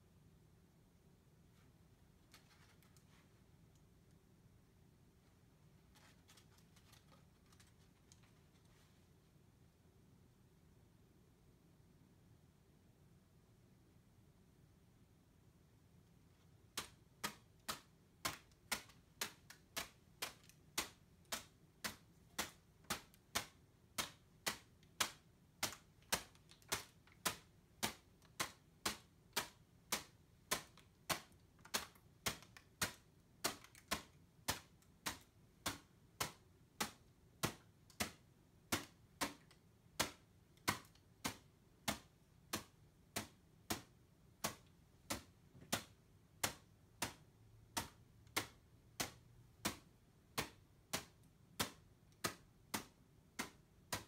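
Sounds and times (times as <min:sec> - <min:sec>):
paper balloon slapping on palm: 0:16.7 - 0:54.0.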